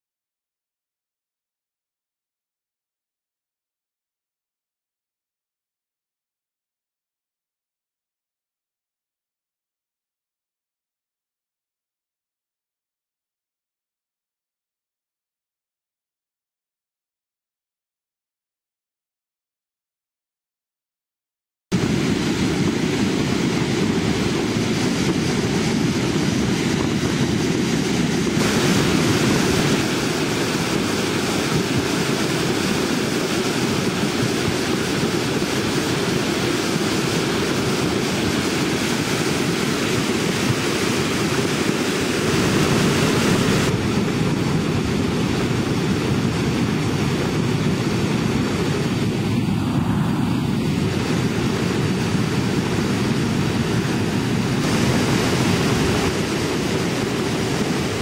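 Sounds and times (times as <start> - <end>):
mountain torrent rushing: 21.8 - 58.0.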